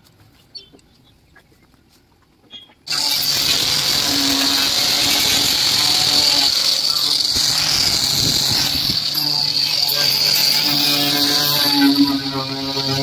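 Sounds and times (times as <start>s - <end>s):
workshop machine whining: 2.9s - 13.0s.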